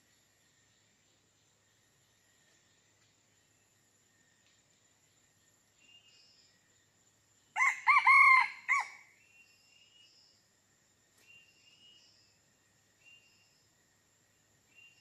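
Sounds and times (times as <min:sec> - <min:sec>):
faint chirps: 0:00.0 - 0:07.7, 0:09.0 - 0:15.0
high insect drone: 0:00.0 - 0:15.0
rooster crowing: 0:07.6 - 0:09.0.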